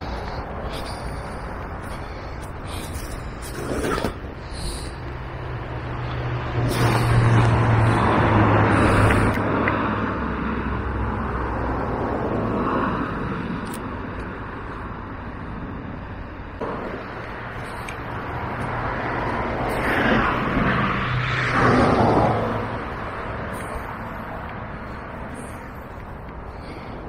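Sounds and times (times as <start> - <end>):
low engine hum: 0.0 - 27.0
vehicles passing: 0.0 - 27.0.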